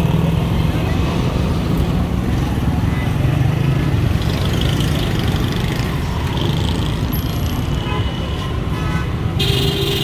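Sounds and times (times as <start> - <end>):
traffic engines rumbling: 0.0 - 10.0
vehicle horn: 7.8 - 10.0.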